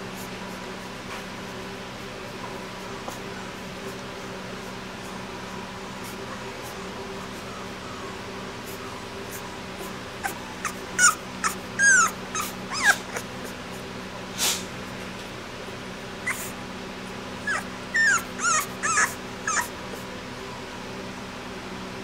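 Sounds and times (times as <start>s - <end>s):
puppy whimpering: 4.7s - 13.8s, 16.2s - 16.6s, 17.4s - 20.9s.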